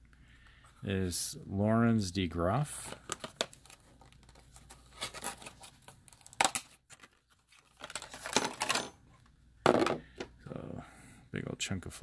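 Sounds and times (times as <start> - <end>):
plastic crinkling and crackling: 2.8 - 8.7.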